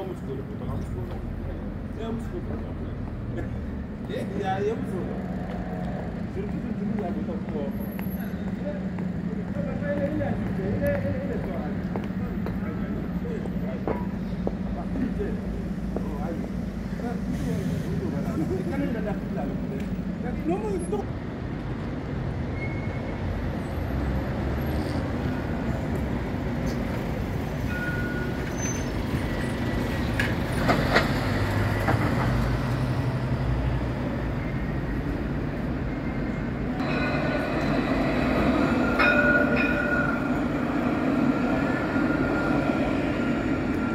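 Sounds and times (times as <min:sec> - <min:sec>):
buses passing: 0:00.0 - 0:43.9
street traffic: 0:00.0 - 0:43.9
tram whine passing: 0:23.0 - 0:43.9.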